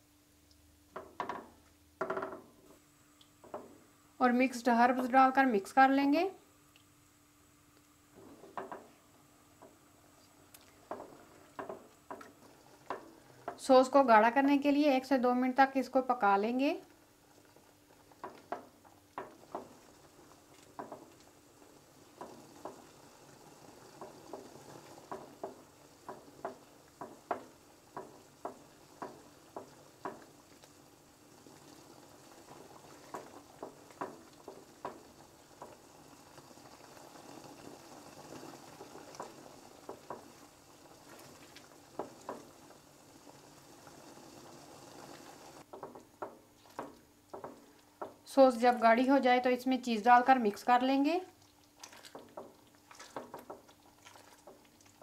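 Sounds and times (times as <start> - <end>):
sauce simmering and bubbling: 0.6 - 4.2, 6.6 - 14.7, 16.2 - 48.6, 50.4 - 55.0
sauce popping: 16.9 - 48.2, 51.3 - 55.0.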